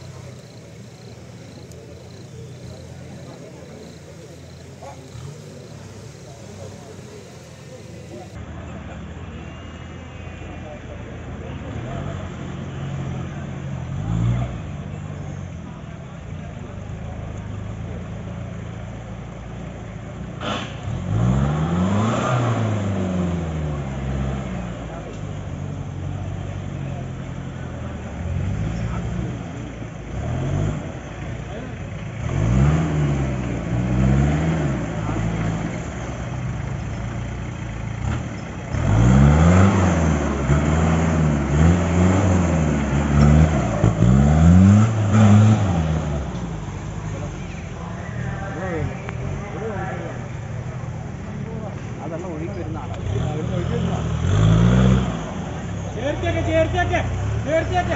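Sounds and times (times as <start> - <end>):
car engine idling and revving: 0.0 - 8.5, 11.0 - 57.9.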